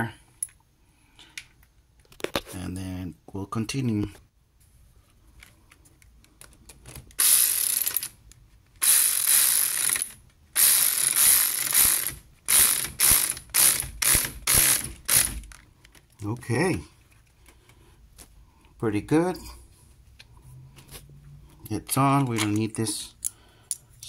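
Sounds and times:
ratchet wrench clicking: 7.2 - 8.2, 8.8 - 15.6.

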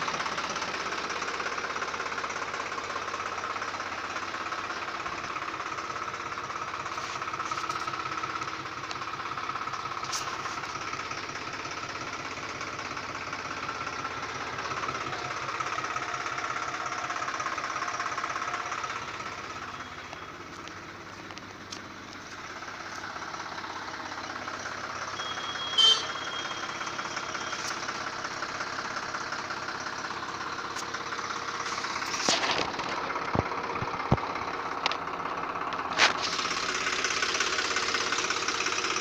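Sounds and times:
tractor diesel engine idling: 0.0 - 39.0.

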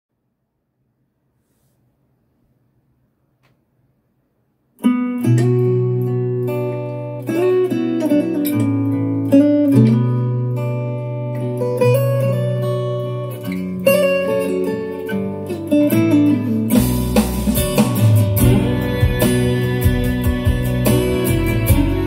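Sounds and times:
instrumental guitar: 4.8 - 22.0
drums and deep bass: 16.7 - 22.0.

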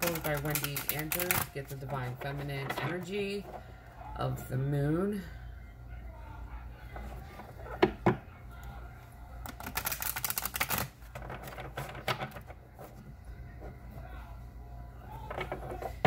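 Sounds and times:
cards being shuffled: 0.0 - 3.0, 9.4 - 13.0.

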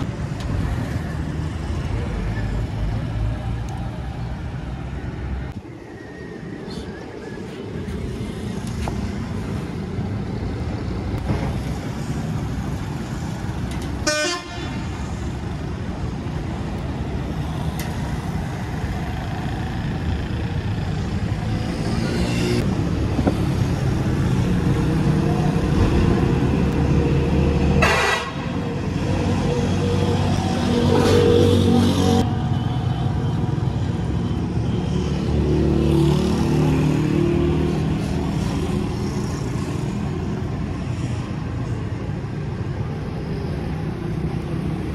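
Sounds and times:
vehicle horns: 14.0 - 14.9, 27.8 - 28.6.

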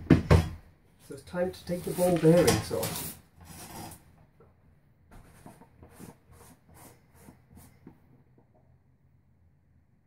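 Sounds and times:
plastic cap scraping: 1.7 - 4.1.

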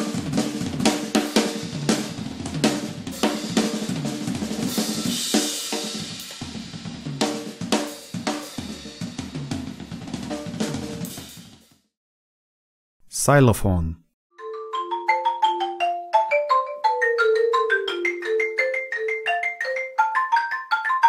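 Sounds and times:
drum kit played with sticks: 0.0 - 11.8.

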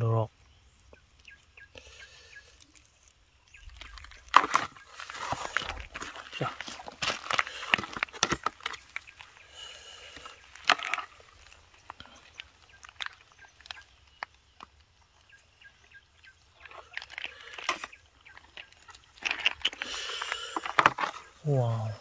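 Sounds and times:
dry leaves crackling underfoot: 3.5 - 14.4.

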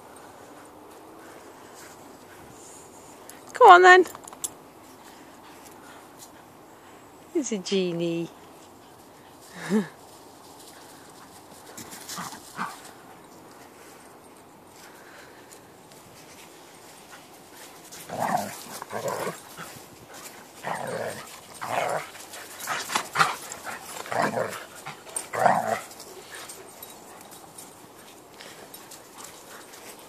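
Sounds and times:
dogs growling and barking: 17.9 - 27.7.

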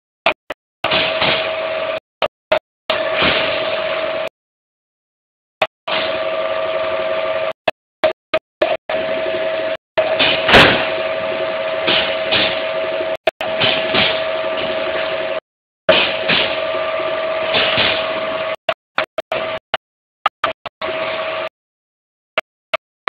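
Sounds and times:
machinery humming with fixed tone: 0.8 - 2.3, 2.9 - 4.3, 5.9 - 19.7, 20.4 - 21.5.

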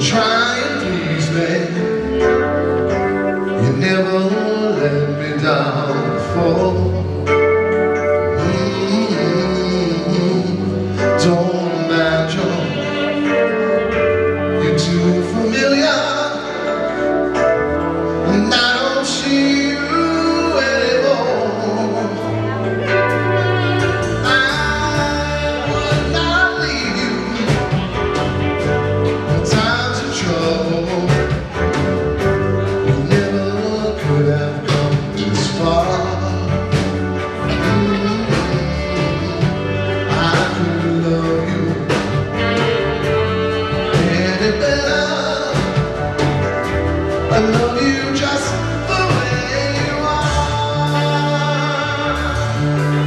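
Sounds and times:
live rock band: 0.0 - 53.0
steady drum beat: 23.0 - 53.0.

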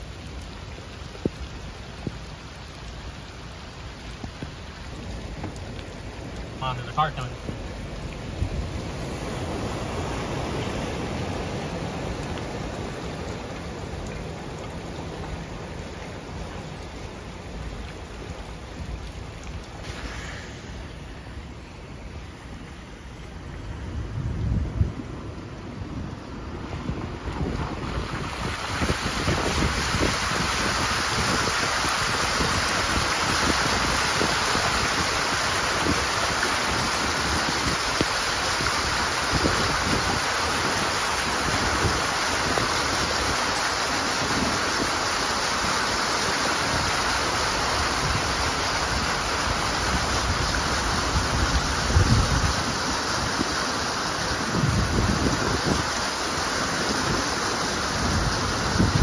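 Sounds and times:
splashing floodwater rushing: 0.0 - 59.0
wind buffeting microphone: 23.8 - 43.4, 47.8 - 53.6, 54.2 - 59.0.

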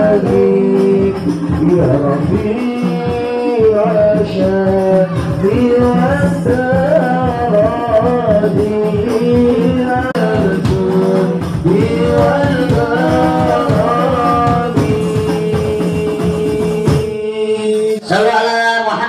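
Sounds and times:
hand drums beating: 0.0 - 18.0
person singing devotional song: 0.0 - 18.8.

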